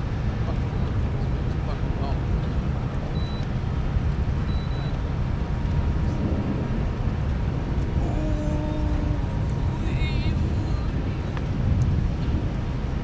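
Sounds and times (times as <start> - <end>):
steady low rumble: 0.0 - 13.0
faint hum: 4.4 - 12.5.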